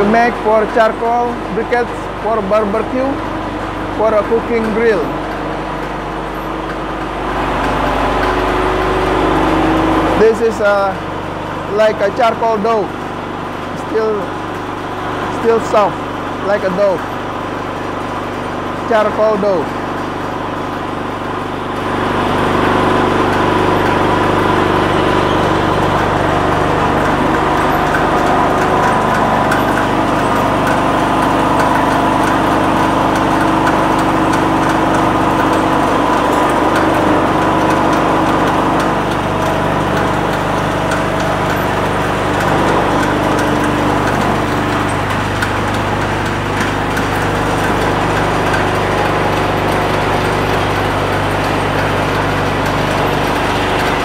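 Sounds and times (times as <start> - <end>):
machinery motor hum: 0.0 - 54.0.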